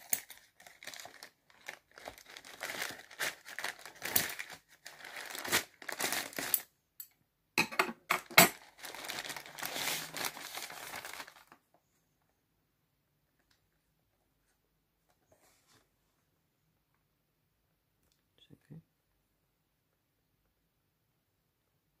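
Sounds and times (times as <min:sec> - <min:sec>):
plastic bag crinkling and tearing: 0:00.0 - 0:06.7, 0:08.2 - 0:11.6.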